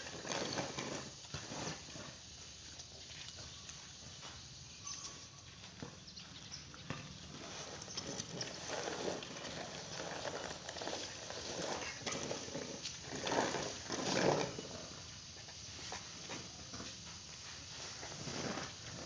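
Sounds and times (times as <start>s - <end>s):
rake scraping through rice grain: 0.0s - 3.5s, 7.3s - 19.0s.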